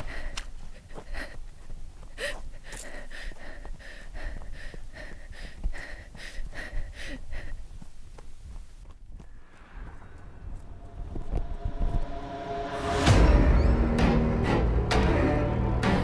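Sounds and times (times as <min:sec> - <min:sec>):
woman panting and gasping: 0:00.0 - 0:08.6
low rumble: 0:09.3 - 0:16.0.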